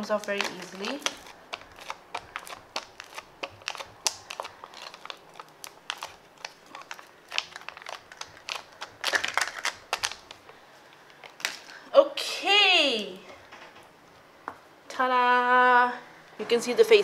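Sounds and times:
foil packet crinkling: 0:00.0 - 0:11.8.

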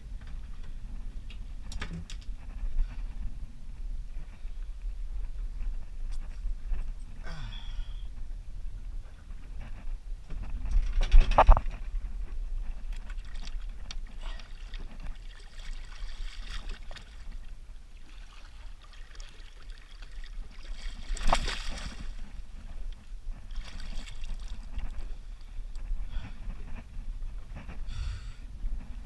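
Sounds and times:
water splashing against boat: 0:12.8 - 0:25.3.

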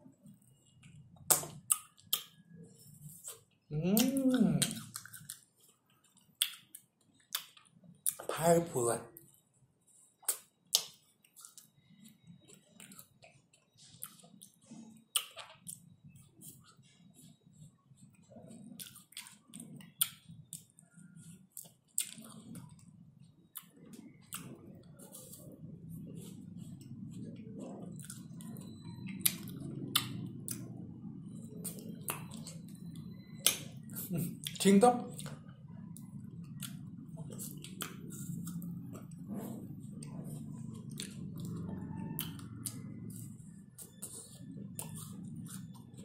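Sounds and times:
low steady hum: 0:00.0 - 0:46.0
licking and chewing: 0:18.0 - 0:25.5, 0:26.1 - 0:46.0.

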